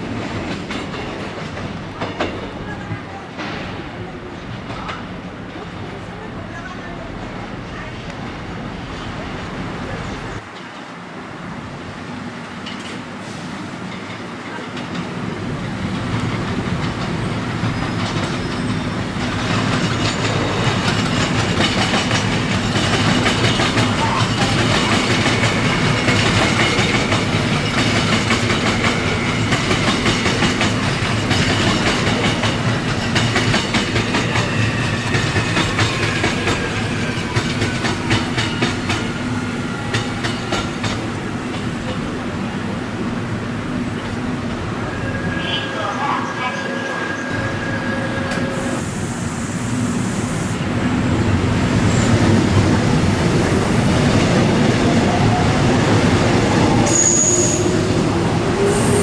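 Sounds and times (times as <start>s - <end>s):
train wheels clicking over rail joints: 0.0s - 2.6s, 13.9s - 42.3s
faint high squeal: 44.9s - 48.8s, 56.8s - 57.8s.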